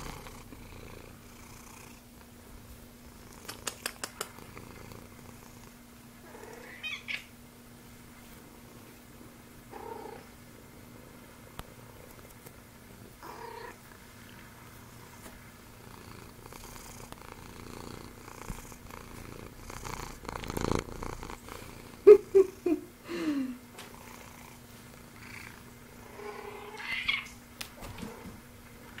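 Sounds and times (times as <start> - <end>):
cat purring: 0.0 - 6.9, 8.5 - 22.8, 23.9 - 27.0
cat calling: 6.5 - 7.3, 26.6 - 27.4.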